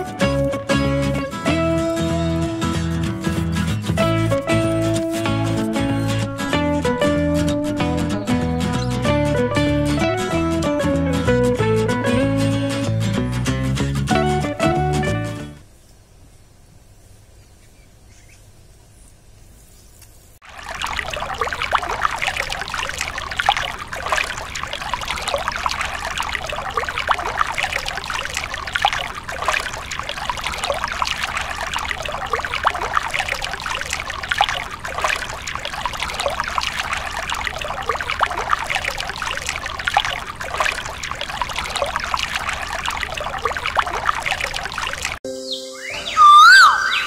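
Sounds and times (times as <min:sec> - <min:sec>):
water trickling into pond: 0:20.4 - 0:45.2.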